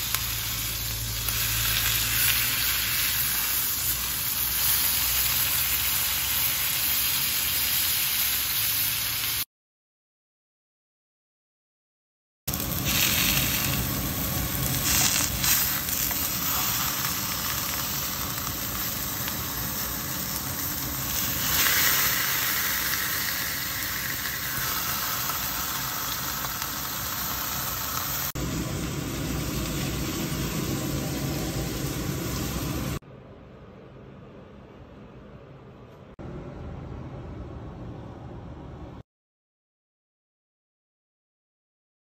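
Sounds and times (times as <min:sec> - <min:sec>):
beef sizzling on grill pan: 0:00.0 - 0:09.4, 0:12.5 - 0:33.0.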